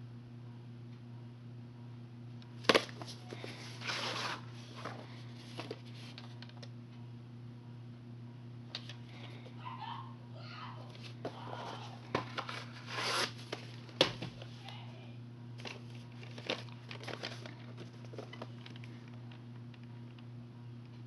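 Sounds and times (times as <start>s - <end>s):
steady low hum: 0.0s - 21.0s
cardboard and plastic rustling: 2.6s - 6.6s, 10.9s - 14.5s, 15.6s - 19.9s.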